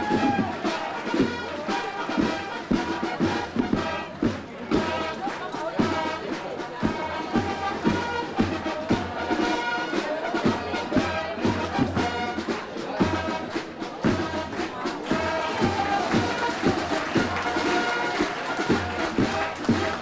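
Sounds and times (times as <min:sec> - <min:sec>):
fanfare trumpets playing chords: 0:00.0 - 0:06.4, 0:14.3 - 0:20.0
marching drumbeat: 0:00.0 - 0:20.0.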